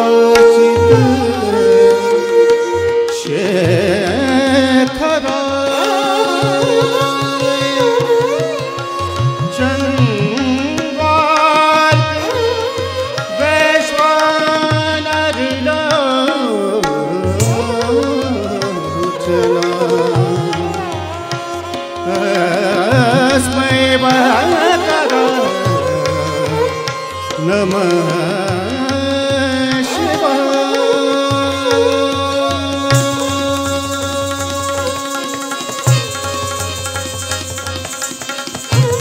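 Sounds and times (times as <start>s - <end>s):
person singing ornamented melody: 0.0s - 39.0s
tabla strokes: 0.0s - 39.0s.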